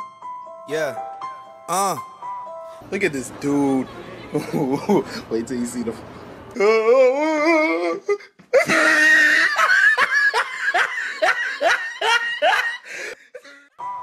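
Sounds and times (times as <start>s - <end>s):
wavering drawn-out voice: 1.7s - 2.0s
person laughing hard: 8.5s - 13.7s.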